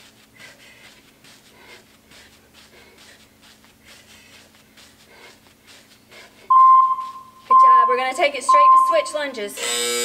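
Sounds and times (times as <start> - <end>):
electronic timer beep: 6.5 - 9.2.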